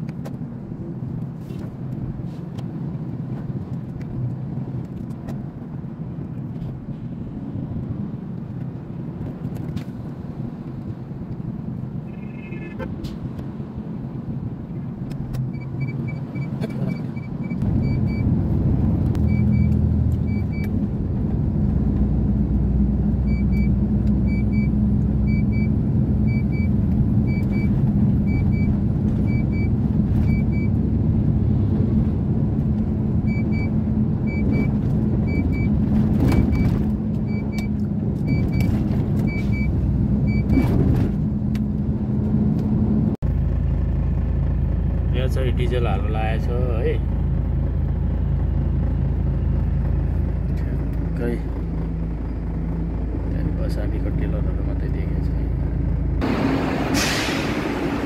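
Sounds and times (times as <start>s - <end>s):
truck engine running: 11.4s - 58.0s
high electronic beep: 12.1s - 12.9s.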